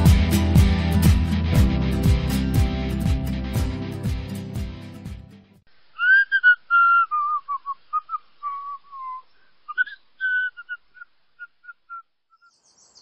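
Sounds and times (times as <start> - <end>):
guitar music: 0.0 - 5.6.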